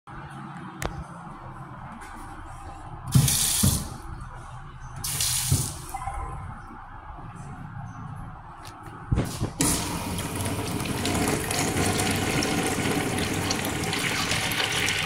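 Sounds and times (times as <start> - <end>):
sink faucet running: 9.6 - 15.0.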